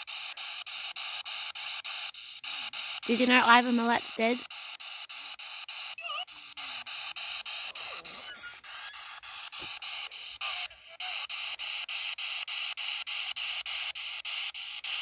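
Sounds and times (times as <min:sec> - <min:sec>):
radio static in short bursts: 0:06.0 - 0:11.4.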